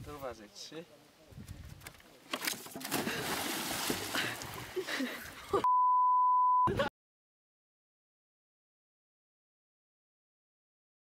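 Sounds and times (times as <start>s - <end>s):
water splashing: 2.4s - 5.6s
censor bleep: 5.6s - 6.7s.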